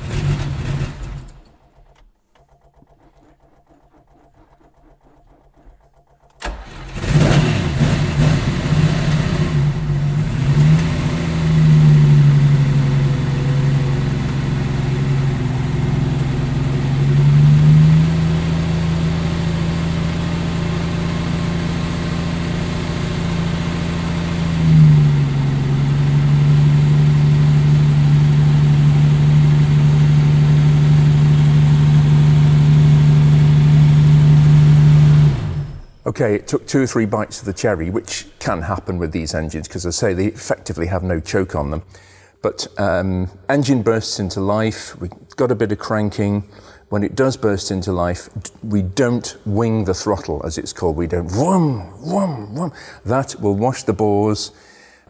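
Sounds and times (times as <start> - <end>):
engine revving: 0.0 - 38.9
car engine starting and idling: 0.0 - 45.0, 45.8 - 55.0.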